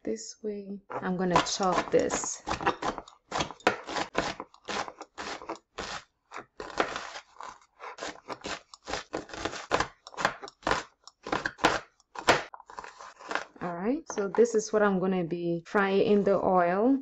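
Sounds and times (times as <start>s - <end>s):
knife chopping onion on board: 1.3s - 6.0s, 6.6s - 7.2s, 8.0s - 12.5s.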